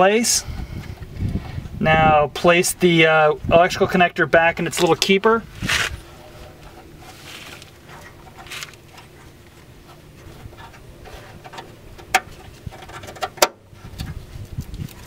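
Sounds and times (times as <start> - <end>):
rustling of wiring and plastic: 4.4 - 15.0.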